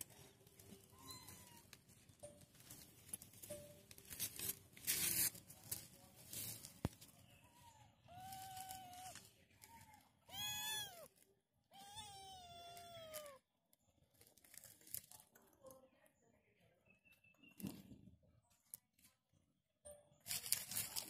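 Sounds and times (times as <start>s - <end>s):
rustling: 0.0s - 7.2s, 8.2s - 11.3s, 20.3s - 21.0s
kitten meowing: 7.6s - 11.1s, 11.7s - 13.4s.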